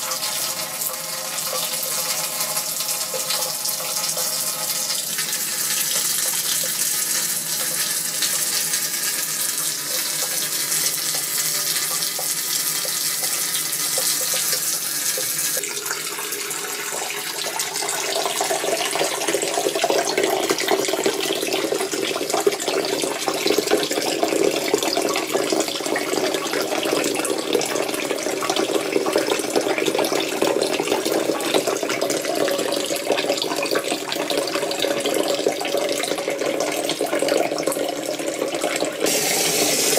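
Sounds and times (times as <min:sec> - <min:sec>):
water rushing through filter: 0:00.0 - 0:39.9.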